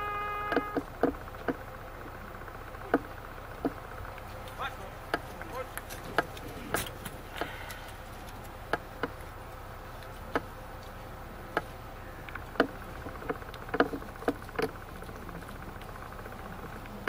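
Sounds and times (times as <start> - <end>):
faint steady buzz: 0.0 - 17.0
light clicks and knocks: 10.0 - 17.0.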